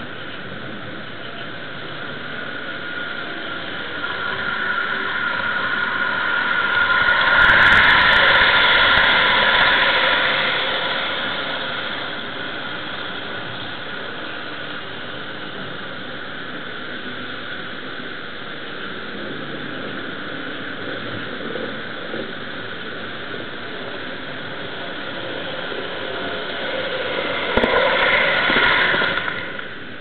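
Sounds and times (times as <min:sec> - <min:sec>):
model train whirring rumble: 0:00.0 - 0:30.0.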